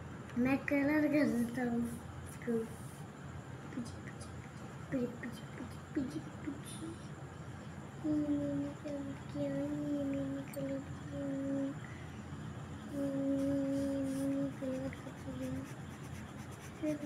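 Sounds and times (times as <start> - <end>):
person humming: 12.9 - 15.7.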